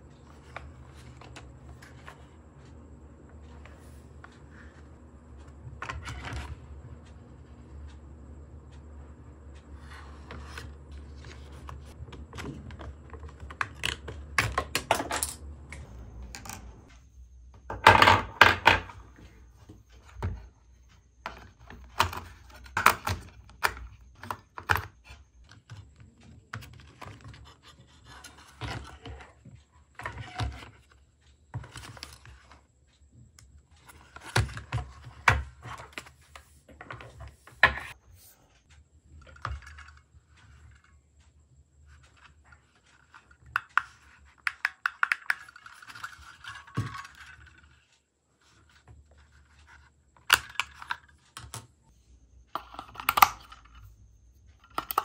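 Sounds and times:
plastic clicks and rattles: 0:41.9 - 0:48.0, 0:52.5 - 0:53.9, 0:54.6 - 0:55.0.

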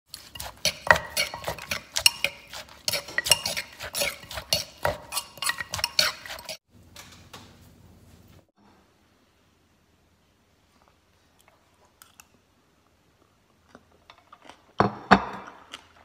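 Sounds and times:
pestle knocking in clay mortar: 0:00.4 - 0:06.5.

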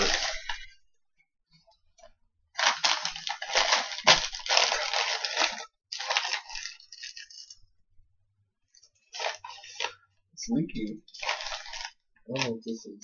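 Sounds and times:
paper wrapper crinkling: 0:00.0 - 0:00.8, 0:02.6 - 0:07.7, 0:08.7 - 0:10.0, 0:10.8 - 0:12.6.

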